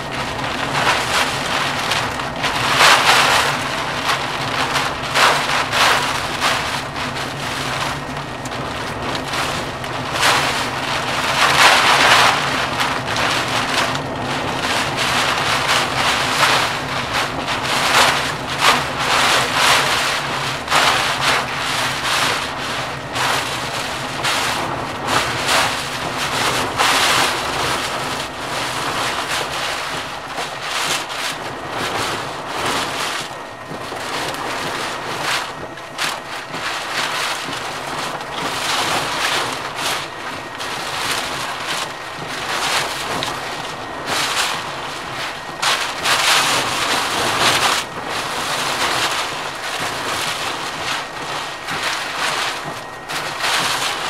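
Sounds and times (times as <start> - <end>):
gusting wind: 0.0 - 54.0
rain: 0.0 - 54.0
steady low hum: 0.0 - 54.0.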